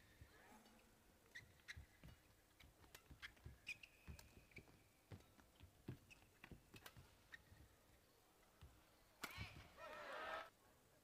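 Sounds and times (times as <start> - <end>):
shoes squeaking on court: 1.2 - 7.9.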